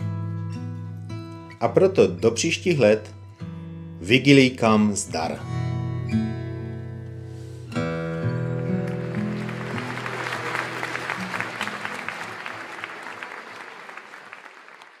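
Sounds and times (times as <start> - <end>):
acoustic guitar strumming: 0.0 - 12.9
audience applauding: 8.5 - 15.0.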